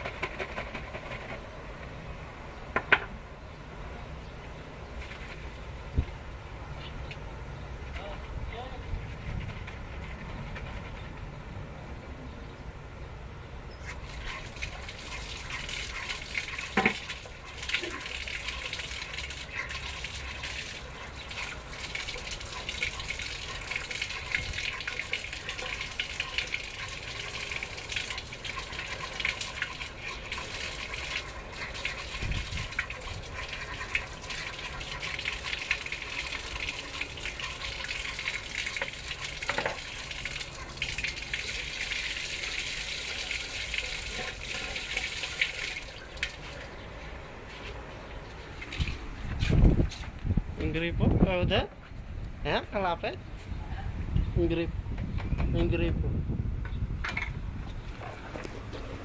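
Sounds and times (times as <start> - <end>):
tap water running and splashing: 13.9 - 46.7, 48.6 - 50.2.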